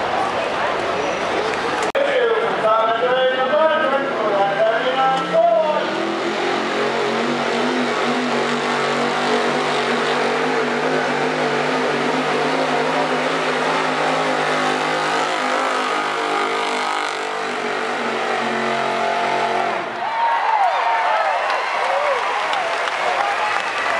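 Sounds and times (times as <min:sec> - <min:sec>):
engine at high revs under load: 0:05.2 - 0:20.0.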